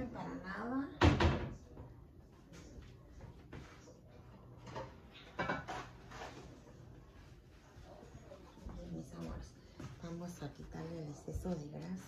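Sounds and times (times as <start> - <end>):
kitchen knocks and clatters: 0.9 - 2.0, 2.6 - 6.7.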